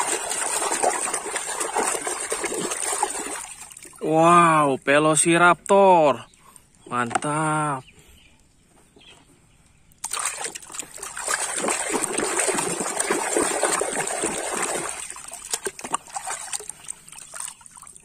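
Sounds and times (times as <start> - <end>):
hand splashing water in tub: 0.0 - 4.0, 10.0 - 18.0.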